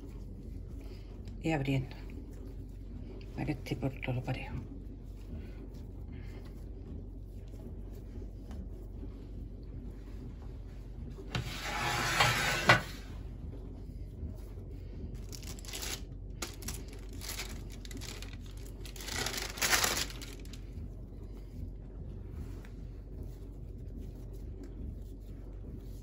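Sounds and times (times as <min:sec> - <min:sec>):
baking paper crinkling: 0:15.2 - 0:20.8.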